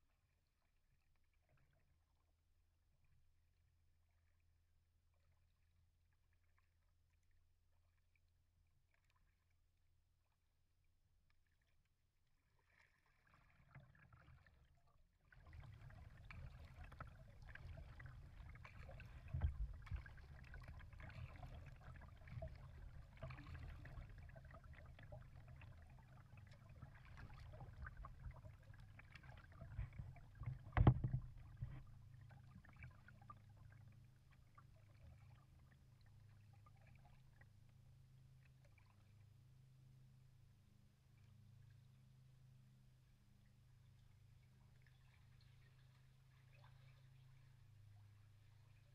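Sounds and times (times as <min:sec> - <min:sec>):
water lapping against kayak hull: 0:11.2 - 0:39.8, 0:43.0 - 0:48.9
knocks on kayak hull: 0:30.5 - 0:31.8.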